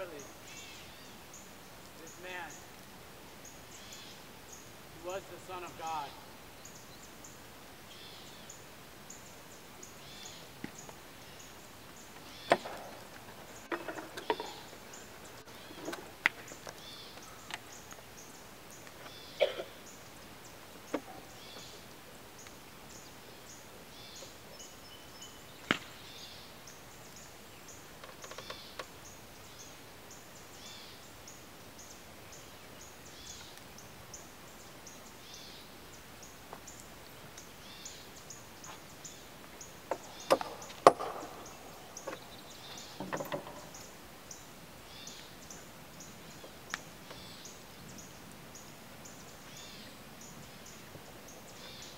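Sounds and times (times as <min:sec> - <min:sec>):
insects chirping: 0:00.0 - 0:51.9
sharp knocks: 0:39.9 - 0:41.4.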